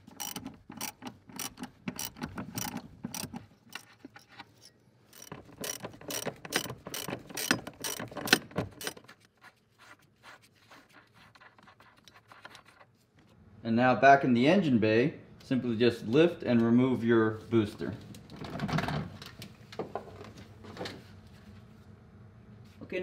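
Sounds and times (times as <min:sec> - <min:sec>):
ratchet wrench clicking: 0:00.0 - 0:04.0, 0:05.1 - 0:09.0.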